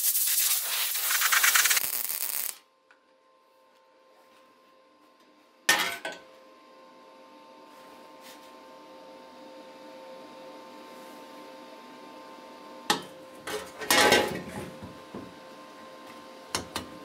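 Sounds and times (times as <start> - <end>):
sharp crackle: 0.0 - 2.6
welding arc crackling and hissing: 0.0 - 2.6.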